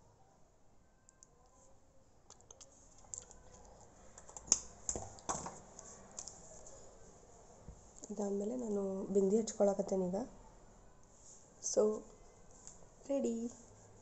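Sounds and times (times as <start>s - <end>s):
makeup items clicking and tapping: 2.3s - 6.4s.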